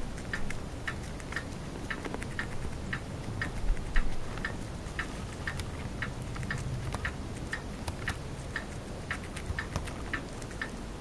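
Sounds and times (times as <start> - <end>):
even ticking: 0.0 - 11.0.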